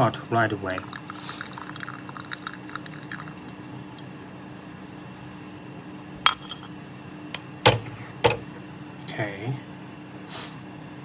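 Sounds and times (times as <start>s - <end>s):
tea trickling into glass pitcher: 0.7s - 3.6s.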